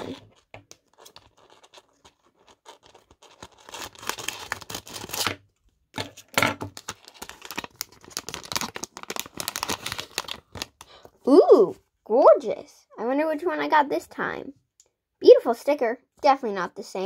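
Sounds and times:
plastic packaging crinkling: 0.0 - 5.3, 6.0 - 11.1.

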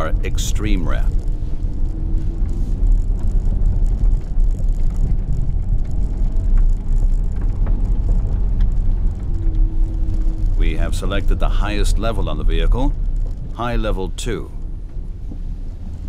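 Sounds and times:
engine and tyres rumbling: 0.0 - 16.0
small ticks: 1.1 - 10.6, 12.9 - 13.6.

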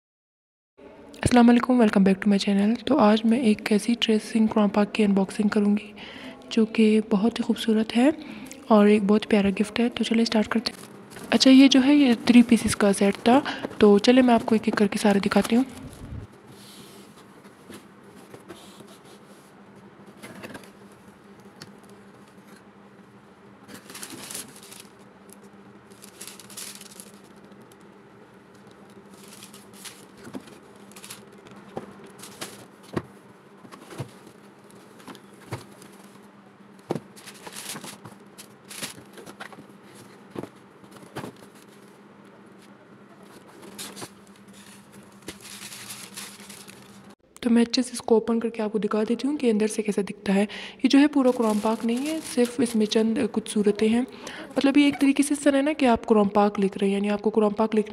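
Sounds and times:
steady low hum: 0.8 - 57.9
paper and card rustling: 10.6 - 19.4, 23.7 - 27.9, 28.5 - 42.0, 42.6 - 47.2, 51.0 - 53.1.

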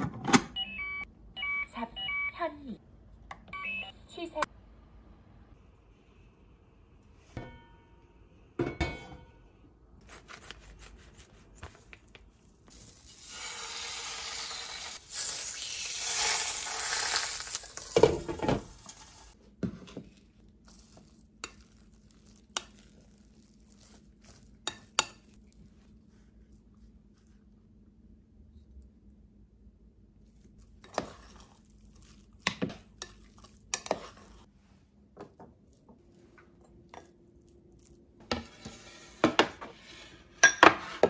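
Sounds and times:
fish sizzling in oil: 12.8 - 19.4.

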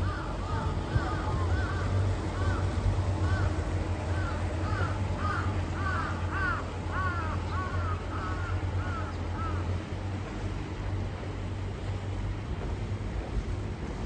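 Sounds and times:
low steady hum: 0.0 - 14.0
crow cawing: 0.1 - 9.7.

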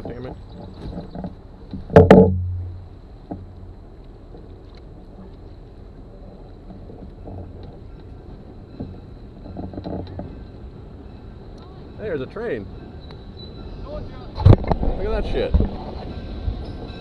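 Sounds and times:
water rumbling under canoe: 0.0 - 10.4.

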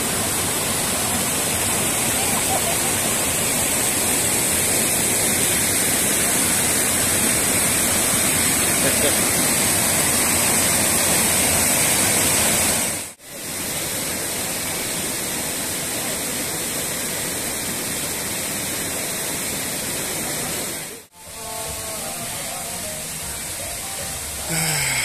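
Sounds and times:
river rapids rushing: 0.0 - 13.2, 20.0 - 25.0.

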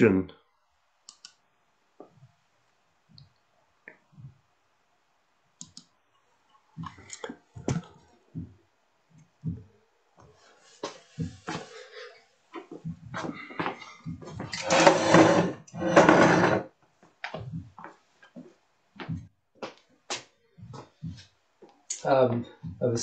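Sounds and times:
chair being moved: 13.2 - 16.7.

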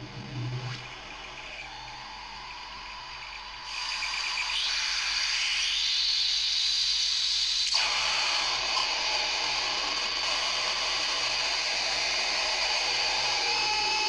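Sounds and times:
synthesizer sweep rising in pitch: 0.0 - 3.2
synthesizer hissing noise: 0.0 - 14.0.

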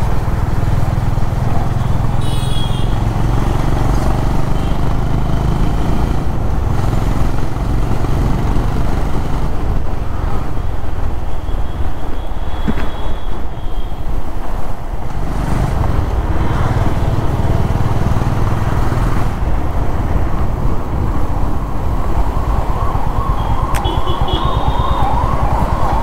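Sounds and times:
motorcycle engine running: 15.1 - 26.0
wavering siren: 21.0 - 26.0.

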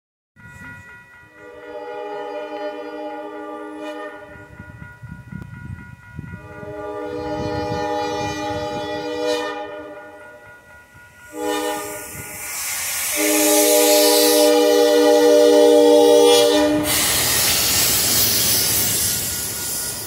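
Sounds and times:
train horn blasts: 1.3 - 4.6, 6.3 - 10.4, 11.3 - 19.1
snow plow rushing hiss: 11.8 - 14.6, 16.7 - 20.0.

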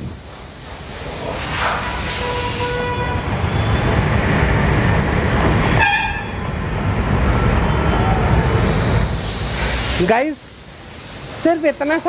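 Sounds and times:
spray bottle hiss: 0.0 - 2.8, 6.8 - 11.4
passing vehicle rumble: 3.1 - 10.0.

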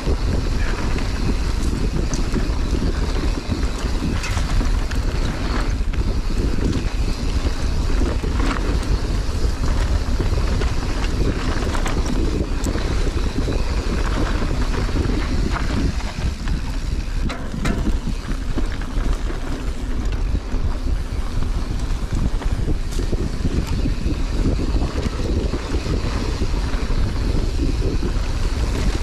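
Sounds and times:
bike clicks and rattles: 0.0 - 29.0
wind rumbling on microphone: 0.0 - 29.0.

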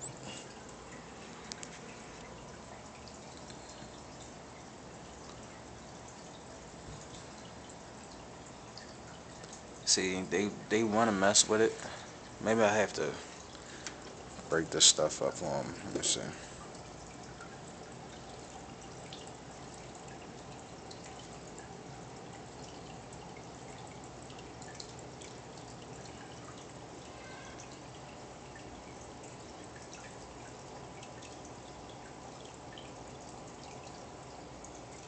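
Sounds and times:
aquarium water trickling: 0.0 - 35.0
water drips: 0.0 - 35.0
faint ticks: 1.4 - 2.4, 3.2 - 4.3.

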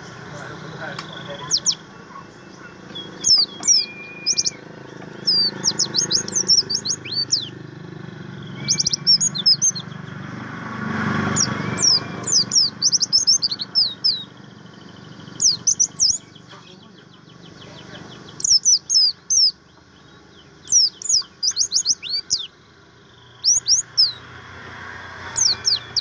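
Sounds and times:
bird chirping: 0.0 - 26.0
bird whistled note: 3.0 - 4.6, 8.5 - 9.8, 11.2 - 14.2, 25.3 - 26.0.

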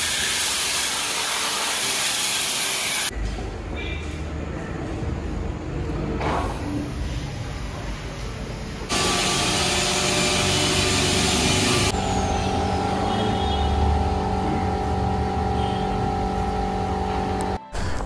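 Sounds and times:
mechanical hum with held tones: 8.8 - 17.6.

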